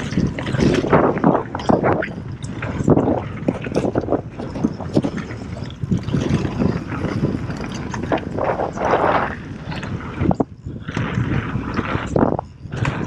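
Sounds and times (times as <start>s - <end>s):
bike chain and frame rattling: 3.9s - 8.8s.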